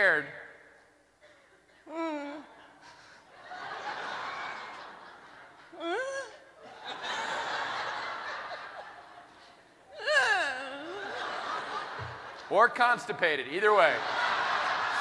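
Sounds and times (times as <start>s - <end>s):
short vocal cry: 1.9s - 2.6s, 9.9s - 11.0s
audience laughing: 2.6s - 5.8s, 6.6s - 9.8s, 10.8s - 12.8s, 13.7s - 15.0s.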